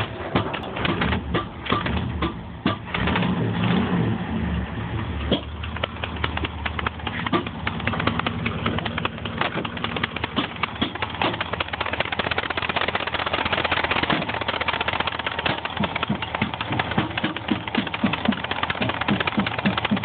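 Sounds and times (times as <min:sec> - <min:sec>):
car engine idling: 0:00.0 - 0:20.0
rapid ticking clatter: 0:05.3 - 0:20.0.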